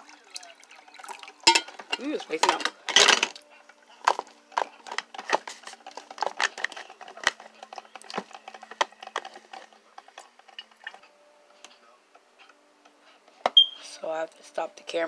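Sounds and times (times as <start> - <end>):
objects handled on counter: 1.5 - 3.4, 4.0 - 11.0.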